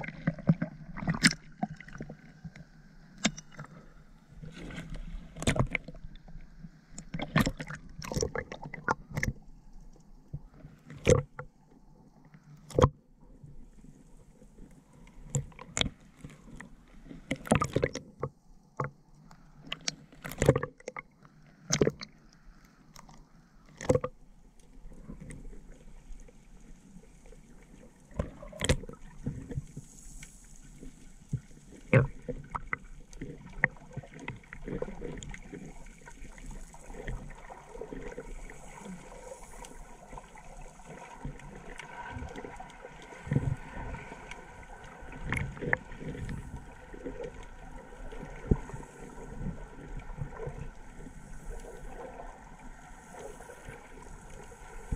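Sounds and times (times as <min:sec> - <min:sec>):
underwater rushing hiss: 0:35.5 - 0:54.9.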